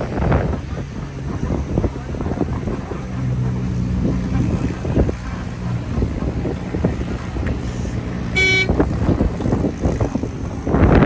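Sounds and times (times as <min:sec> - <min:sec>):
engine humming: 0:00.0 - 0:11.0
vehicle horn toot: 0:08.3 - 0:08.8.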